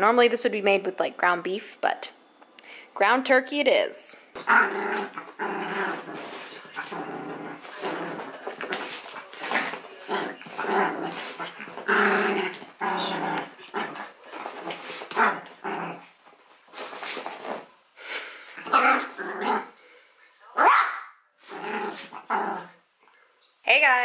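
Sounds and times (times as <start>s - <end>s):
small dog growling: 4.4s - 16.2s, 18.6s - 19.8s, 21.4s - 22.8s
dog barking: 20.6s - 21.2s.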